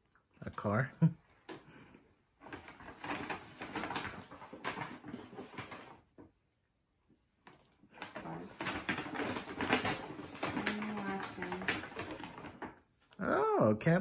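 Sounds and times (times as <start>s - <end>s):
paper bag rustling: 2.4s - 6.3s, 7.9s - 12.9s.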